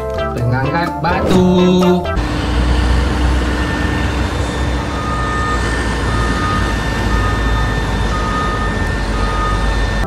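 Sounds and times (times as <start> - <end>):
heavy diesel engine running: 2.2 - 10.0
high whine: 2.2 - 10.0
reversing alarm beeping: 2.2 - 10.0.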